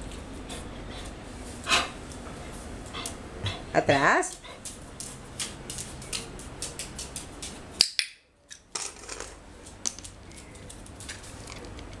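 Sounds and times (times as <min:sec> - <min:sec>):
dog claws clicking on tile floor: 0:04.3 - 0:12.0.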